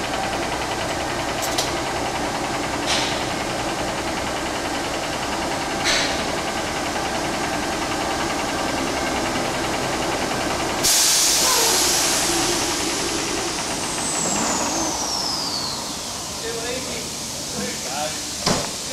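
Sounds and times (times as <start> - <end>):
diesel truck engine idling: 0.0 - 18.9
air brakes hissing: 10.8 - 18.9
thin high whistle: 14.2 - 16.2.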